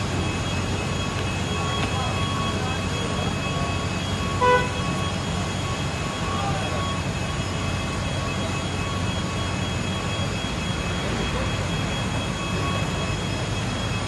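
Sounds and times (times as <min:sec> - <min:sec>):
low rumble of traffic and engines: 0:00.0 - 0:14.0.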